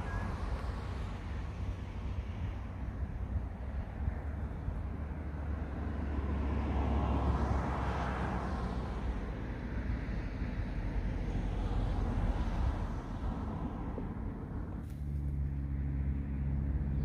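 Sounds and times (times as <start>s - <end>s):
car driving past: 3.8s - 17.0s.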